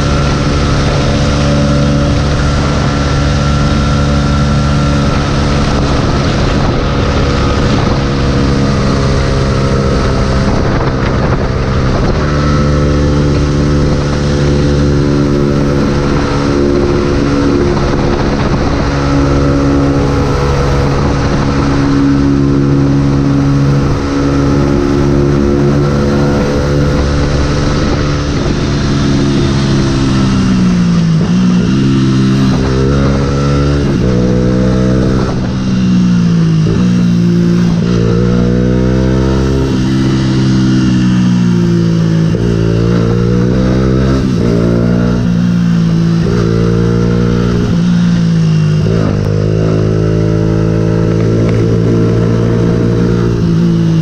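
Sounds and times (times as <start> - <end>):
motorcycle engine cruising: 0.0 - 54.0
wind noise on microphone: 0.0 - 54.0.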